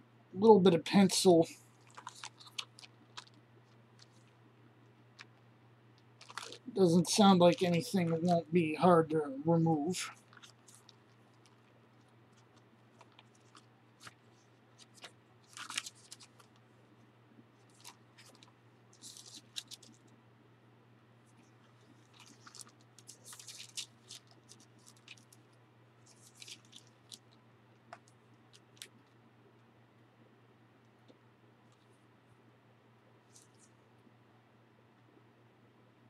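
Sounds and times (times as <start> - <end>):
book pages turning: 1.8 - 4.4, 6.1 - 8.4, 10.2 - 16.6, 17.6 - 20.1, 21.4 - 25.4, 26.0 - 29.0.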